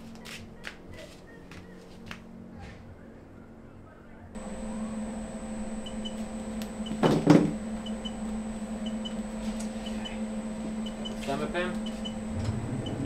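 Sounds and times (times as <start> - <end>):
pellet smoker electric hum: 4.4 - 13.0.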